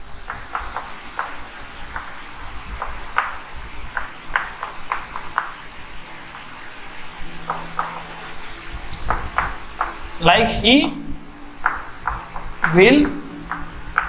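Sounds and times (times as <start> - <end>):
chalk tapping and scraping on blackboard: 0.2 - 5.6, 11.6 - 14.0.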